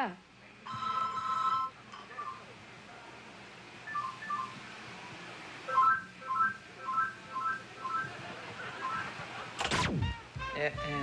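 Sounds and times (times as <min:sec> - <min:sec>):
mobile phone ringing: 0:00.7 - 0:01.8.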